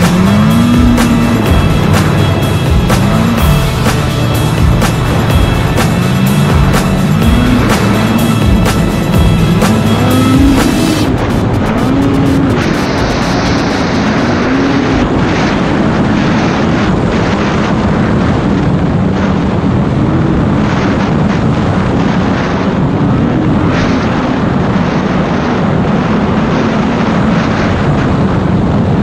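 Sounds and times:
snowmobile engine running: 0:00.0 - 0:29.0
steady rushing noise: 0:00.0 - 0:29.0.

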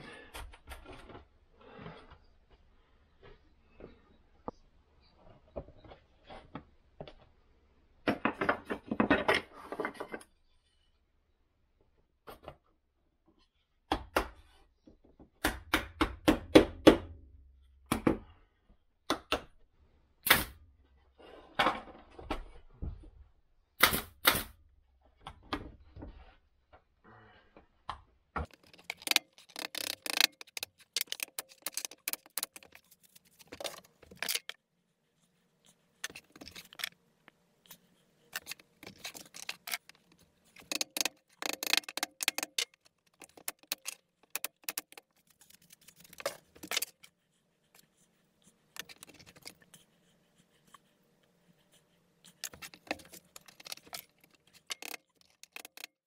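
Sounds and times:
wooden pieces clattering: 0:28.5 - 0:34.6, 0:38.4 - 0:47.0.

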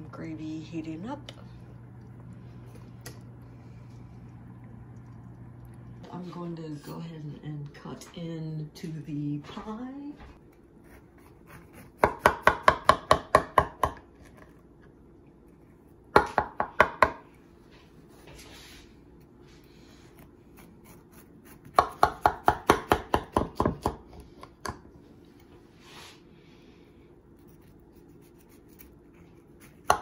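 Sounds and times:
knife sawing crunchy crust: 0:10.7 - 0:12.0, 0:20.0 - 0:21.8, 0:27.3 - 0:29.9.

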